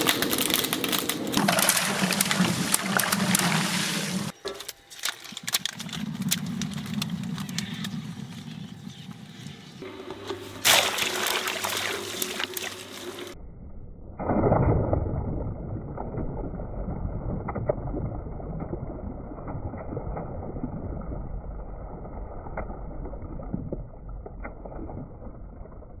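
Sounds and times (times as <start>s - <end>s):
shredder running: 0.0s - 4.4s, 9.8s - 13.4s
water splashing: 0.0s - 4.4s, 9.8s - 13.4s
water balloons bursting: 0.0s - 8.1s, 9.9s - 13.4s.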